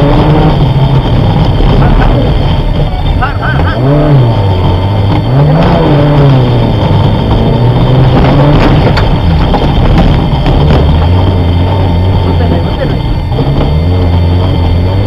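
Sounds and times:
car engine revving under load: 0.0 - 15.0.

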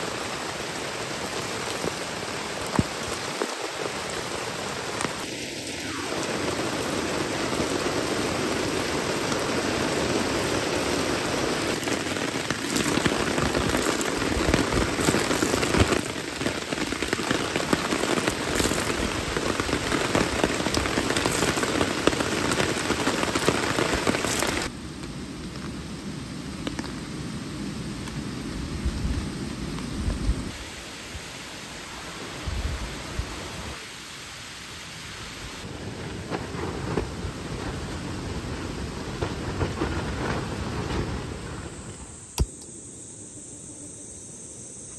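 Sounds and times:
water streaming off tarp: 0.0 - 24.7
heavy rain on a tarp: 0.0 - 41.9.

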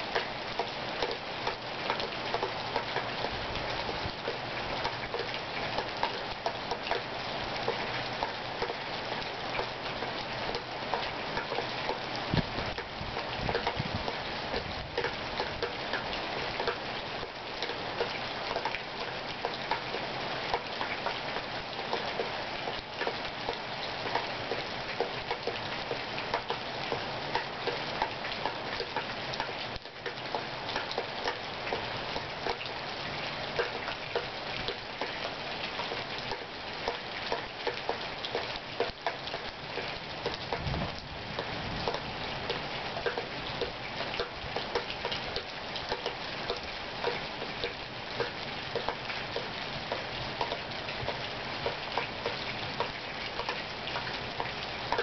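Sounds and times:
raindrops ticking: 0.0 - 55.0
steady rain: 0.0 - 55.0
low thunder rumble: 40.6 - 41.0.

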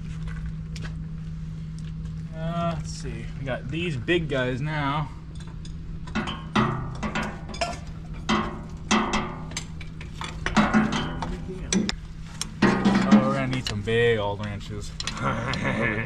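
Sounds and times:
low hum: 0.0 - 16.0
steel wrenches clanking: 5.4 - 11.9.

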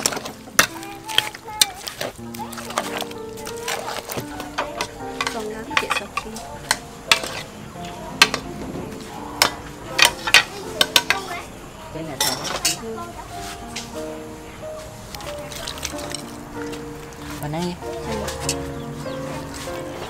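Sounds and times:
metal spoon stirring in pot: 0.0 - 7.6, 8.2 - 11.2, 15.2 - 16.8
chopsticks knocking in frying pan: 8.2 - 8.5, 9.4 - 11.3.

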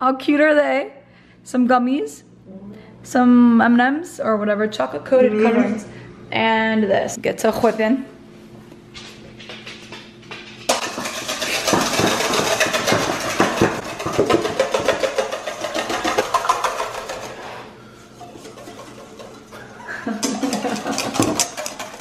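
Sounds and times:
whisk beating in metal bowl: 10.7 - 22.0.

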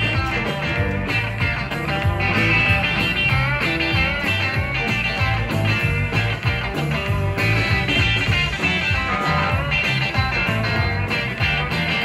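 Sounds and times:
bass: 0.0 - 12.0
drums: 0.0 - 12.0
electric guitars: 0.0 - 12.0.

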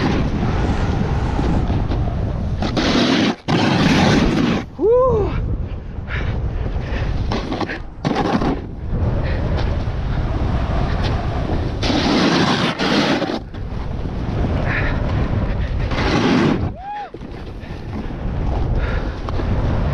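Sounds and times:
snowboard edge scraping snow: 0.0 - 4.7, 7.2 - 9.0, 9.6 - 14.3, 15.8 - 18.2
wind rumble on microphone: 0.0 - 19.9.

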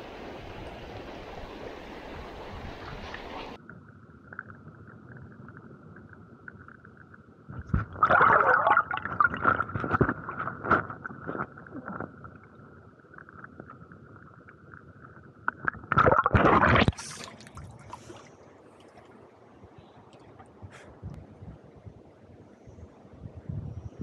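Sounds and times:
water crackling against camera housing: 9.1 - 12.2.

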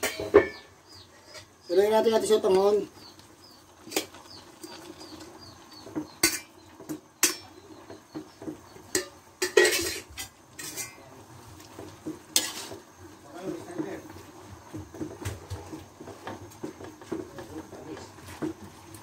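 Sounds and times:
metal pot clanking on wok: 0.0 - 0.7, 6.0 - 7.7, 8.4 - 11.0.

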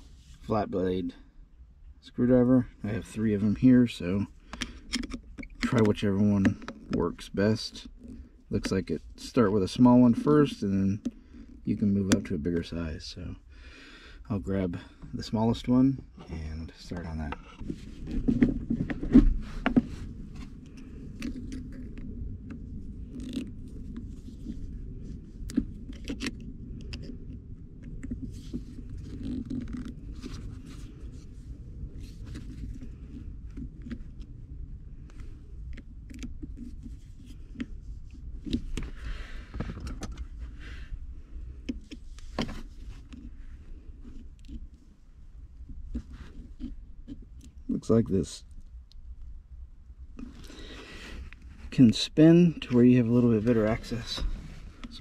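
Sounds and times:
steady low rumble: 0.0 - 55.0
small clicks and scrapes: 4.1 - 12.8, 16.2 - 34.4, 35.0 - 47.9, 50.1 - 52.0.

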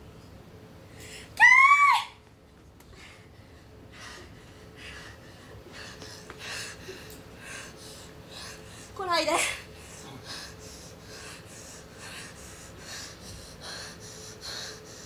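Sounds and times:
woman screaming: 1.4 - 2.2.

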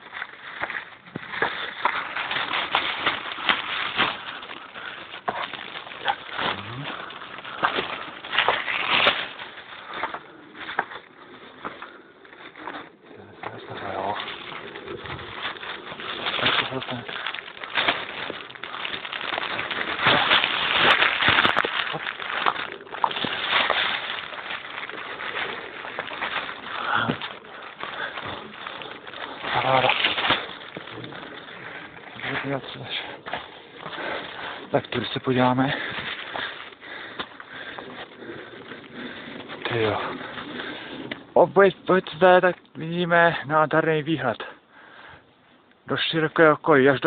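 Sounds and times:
crunches and knocks: 0.0 - 35.1
footsteps on rocky ground: 0.0 - 42.6
branches brushing microphone: 0.0 - 43.1
undergrowth rustling: 0.0 - 47.0.

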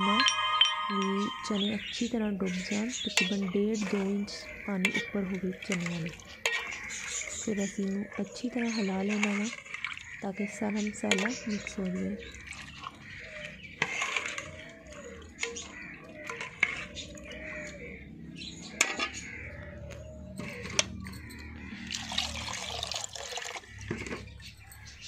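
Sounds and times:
liquid sloshing in a pot: 2.6 - 18.0, 21.6 - 24.8.

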